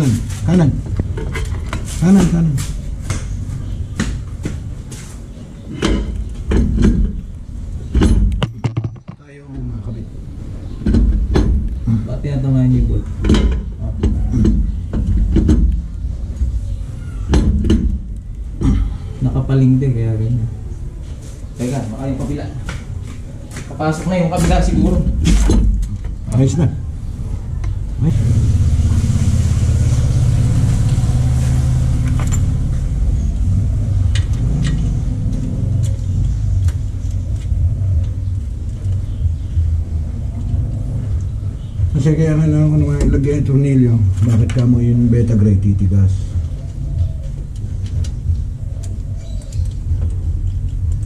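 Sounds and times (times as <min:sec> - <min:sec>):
sharp metallic knocks: 0:07.9 - 0:09.2.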